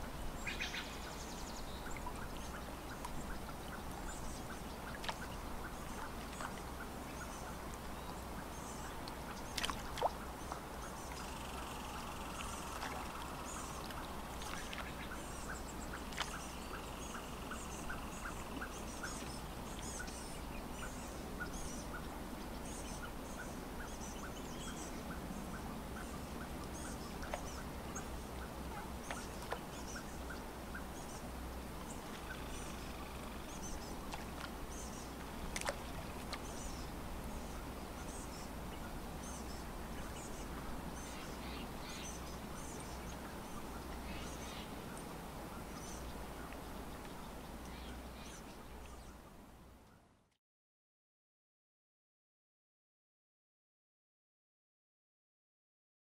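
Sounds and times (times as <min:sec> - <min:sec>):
water lapping gently: 0:00.0 - 0:49.4
birds chirping: 0:00.3 - 0:49.4.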